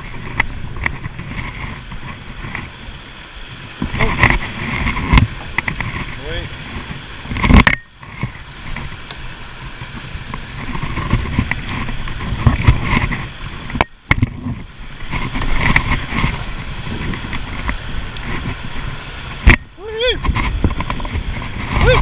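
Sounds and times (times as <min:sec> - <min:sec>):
river rapids rushing and splashing: 0:00.0 - 0:22.0
wind buffeting on microphone: 0:00.0 - 0:22.0.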